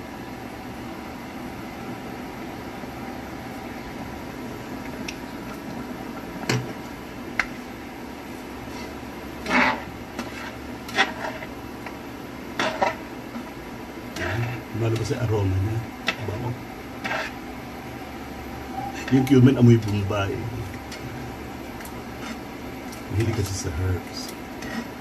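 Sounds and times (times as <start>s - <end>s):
steady low hum: 0.0s - 25.0s
spatula scraping frying pan: 8.6s - 13.5s, 14.1s - 14.7s, 17.0s - 17.4s, 22.1s - 22.5s, 24.5s - 25.0s.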